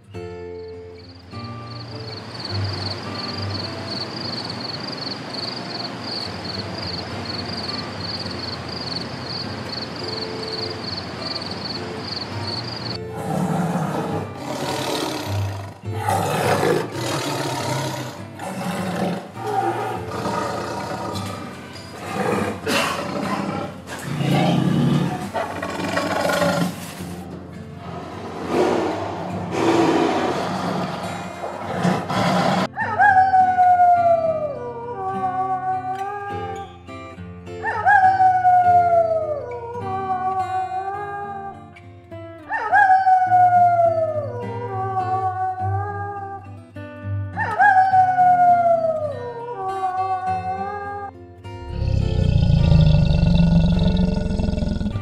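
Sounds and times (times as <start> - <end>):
background music: 6.1 - 55.0
tiger roaring: 13.1 - 27.0, 27.9 - 32.7, 51.6 - 55.0
wolf howling: 42.5 - 46.0, 51.7 - 55.0.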